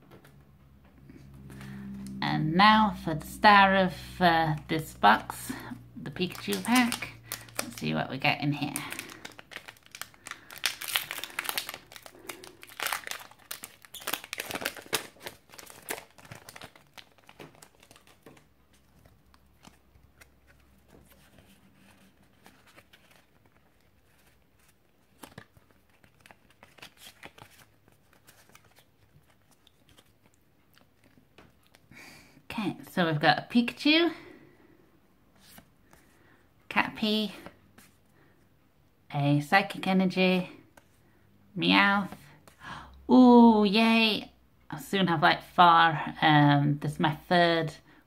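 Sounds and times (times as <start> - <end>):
foil wrapper crinkling and tearing: 6.1 - 21.2, 22.2 - 31.8
cards rustling and clicking: 6.2 - 8.0, 8.6 - 31.9.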